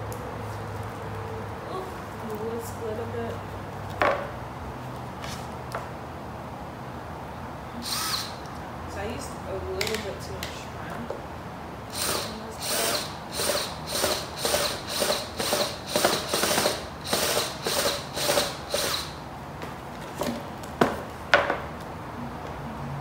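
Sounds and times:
cordless drill boring wood: 7.8 - 8.4, 11.9 - 19.2.

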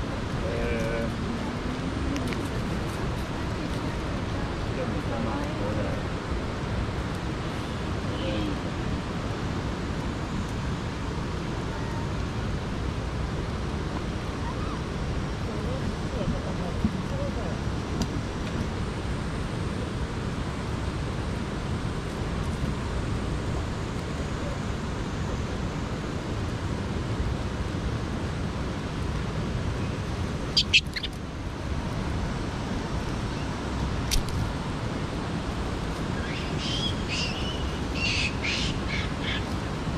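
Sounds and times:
background hiss: 0.0 - 39.9
monkeys squealing: 30.6 - 31.2.

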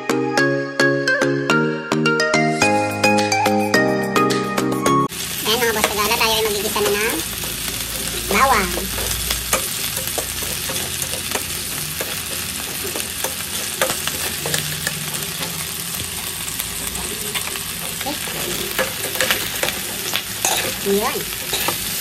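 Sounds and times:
garlic sizzling in wok: 5.1 - 22.0
metal spatula scraping wok: 5.8 - 22.0.

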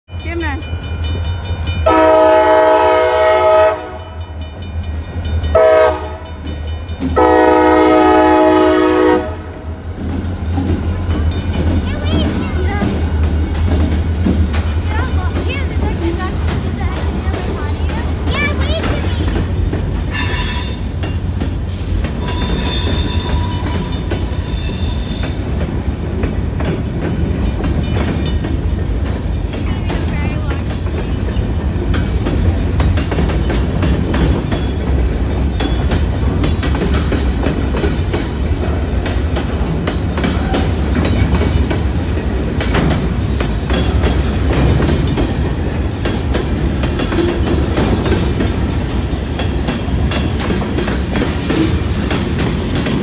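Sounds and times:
diesel locomotive engines rumbling: 0.1 - 53.0
train air horn blasts: 1.8 - 4.2, 5.5 - 6.4, 7.2 - 9.7, 20.1 - 20.9
wheels clicking over rail joints: 3.8 - 53.0
high wheel squeal: 20.1 - 20.9, 22.1 - 25.4.

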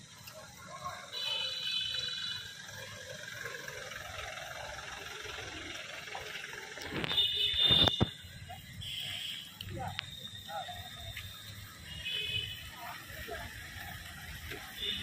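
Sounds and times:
vehicles driving: 0.0 - 15.0.

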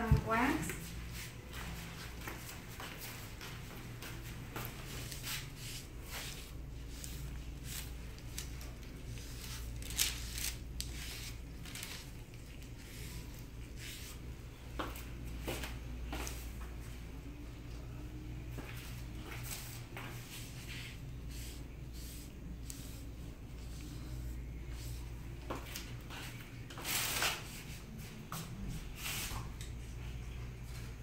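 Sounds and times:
steady low hum: 0.0 - 31.0
sharp crinkles: 7.6 - 13.0.

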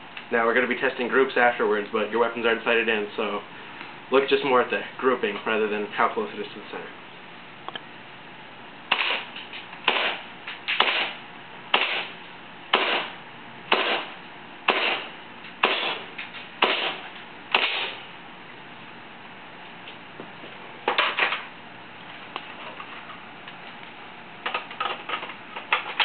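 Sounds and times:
airsoft rifle shots: 8.9 - 12.1, 12.7 - 18.0.

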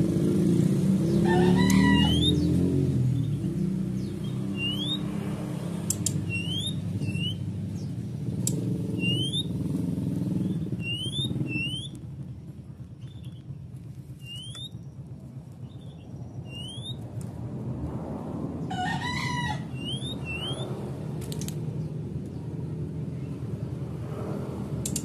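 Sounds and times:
bird whistled call notes: 1.6 - 2.5, 4.2 - 5.0, 6.2 - 7.4, 8.9 - 9.6, 10.4 - 12.0, 14.2 - 14.8, 15.8 - 17.0, 19.7 - 20.7.

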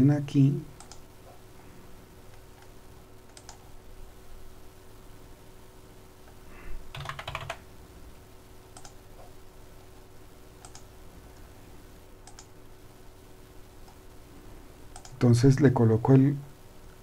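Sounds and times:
faint steady hum: 0.0 - 17.0
keyboard typing: 0.8 - 1.1, 3.3 - 3.7, 6.9 - 7.6, 8.7 - 9.0, 10.6 - 10.9, 12.2 - 12.6, 14.9 - 15.2.

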